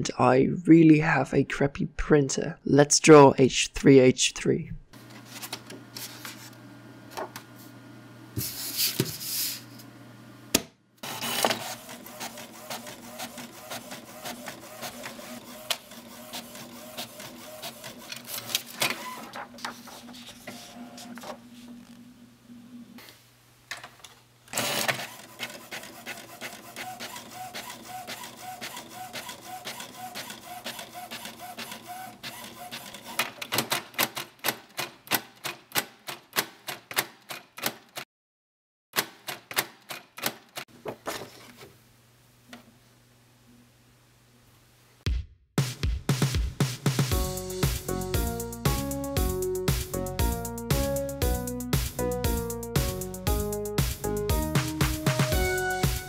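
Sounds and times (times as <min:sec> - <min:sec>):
printer motor hum: 0:11.0 - 0:22.0, 0:24.5 - 0:33.2
printer ticking: 0:11.5 - 0:19.2, 0:24.6 - 0:35.3
quick regular printer clicks: 0:24.5 - 0:38.0, 0:39.0 - 0:40.7.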